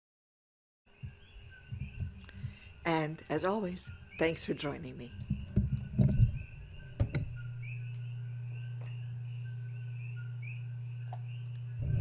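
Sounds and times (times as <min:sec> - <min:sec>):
steady low hum: 0:00.9 - 0:12.0
knocks and clicks: 0:05.2 - 0:06.4, 0:07.0 - 0:07.4.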